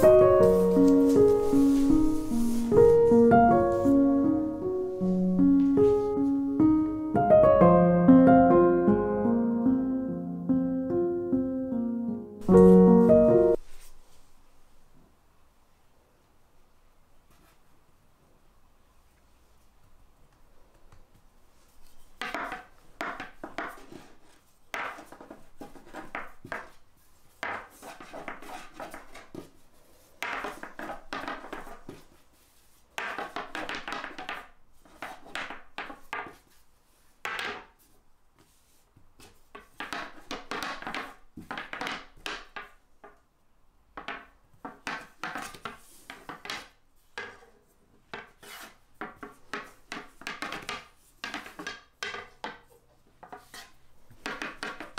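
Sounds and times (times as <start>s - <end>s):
rolling pin rolling over dough: 0.0s - 4.1s, 21.8s - 43.2s, 44.0s - 54.9s.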